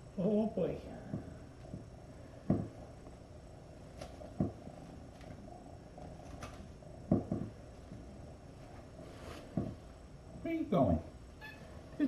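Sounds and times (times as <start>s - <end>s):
cat purring: 0.6s - 11.2s
soft thumps: 1.0s - 2.8s, 4.0s - 4.7s, 7.0s - 8.1s, 8.8s - 9.9s.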